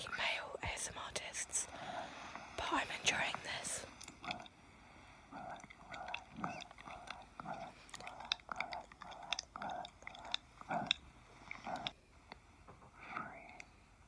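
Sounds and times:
wet mouth smacking and clicking: 0:03.9 - 0:04.6, 0:05.4 - 0:12.4.

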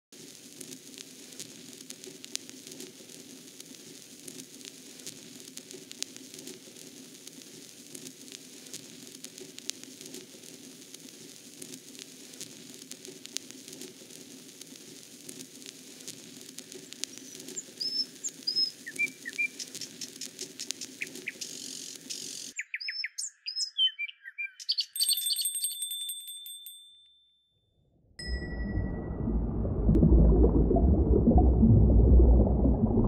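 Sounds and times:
steady crackle: 0:00.1 - 0:22.6, 0:28.2 - 0:33.0
bird-like chirps: 0:17.1 - 0:25.6
high ringing tone: 0:25.0 - 0:29.9
low hum: 0:28.0 - 0:33.0.

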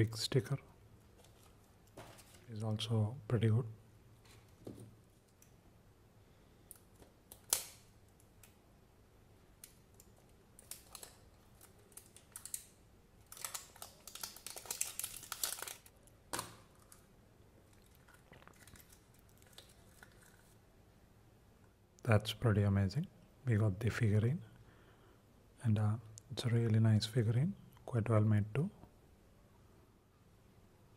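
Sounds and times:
faint handling noise: 0:01.0 - 0:02.9
wrapping crinkling and tearing: 0:09.7 - 0:20.6.

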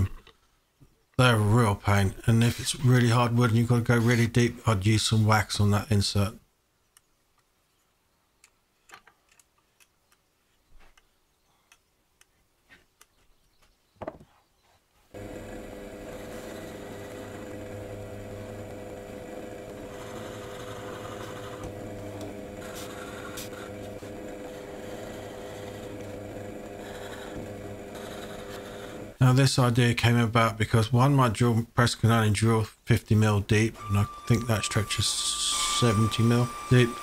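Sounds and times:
knock: 0:14.0 - 0:14.3
drill bit boring into wood: 0:15.2 - 0:29.2, 0:33.8 - 0:37.0
drill press motor humming: 0:15.2 - 0:29.2, 0:33.8 - 0:37.0.

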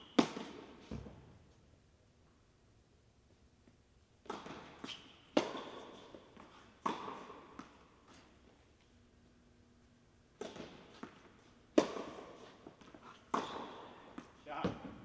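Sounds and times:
tennis ball bounces: 0:00.2 - 0:01.3, 0:04.2 - 0:07.9, 0:10.4 - 0:15.0
tennis racket hits: 0:04.2 - 0:08.3.

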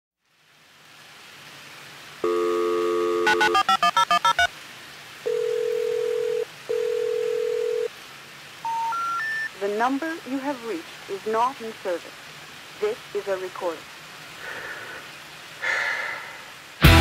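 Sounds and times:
long steady phone beeps: 0:02.2 - 0:04.5, 0:05.3 - 0:07.9, 0:08.6 - 0:09.5
telephone dial tone: 0:02.2 - 0:04.5, 0:05.3 - 0:07.9
touch-tone digits dialled: 0:02.3 - 0:04.5, 0:08.7 - 0:09.5.

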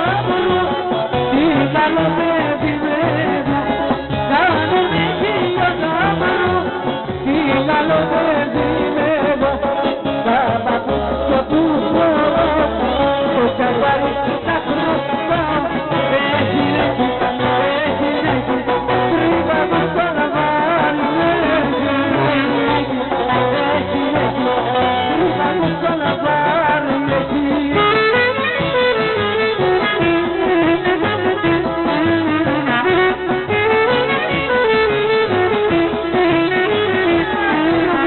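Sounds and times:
woman singing: 0:00.0 - 0:28.0
plucked lute: 0:00.0 - 0:38.0
pulsing bass: 0:00.0 - 0:38.0.

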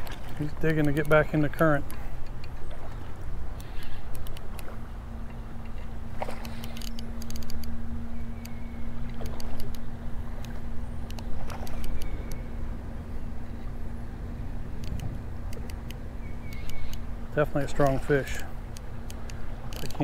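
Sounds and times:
sharp clicks: 0:03.6 - 0:04.7, 0:06.4 - 0:07.8, 0:08.4 - 0:12.5, 0:14.8 - 0:17.1, 0:18.7 - 0:20.0.

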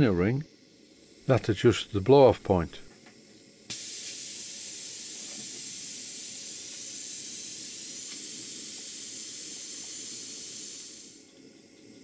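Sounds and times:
safety valve hissing steam: 0:03.7 - 0:11.3.

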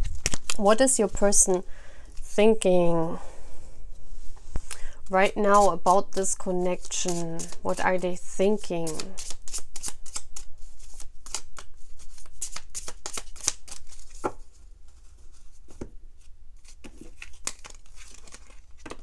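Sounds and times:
cards being shuffled: 0:00.0 - 0:00.7, 0:04.6 - 0:07.9, 0:08.8 - 0:15.9, 0:16.6 - 0:19.0.

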